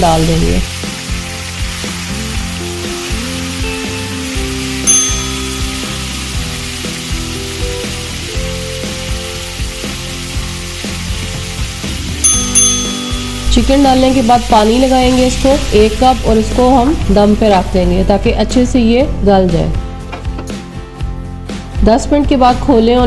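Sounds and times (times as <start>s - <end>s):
chicken sizzling in oil: 0.0s - 17.8s
background music: 0.0s - 23.0s
bell-like chime: 4.9s - 6.2s, 12.2s - 13.9s.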